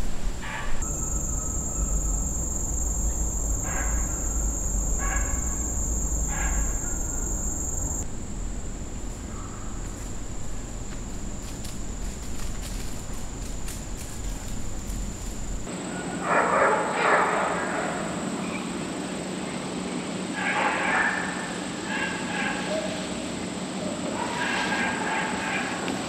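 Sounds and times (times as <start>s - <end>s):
insects droning: 0.0s - 15.9s
distant dog barks: 0.4s - 8.1s, 8.7s - 18.1s, 20.4s - 23.0s, 24.1s - 26.0s.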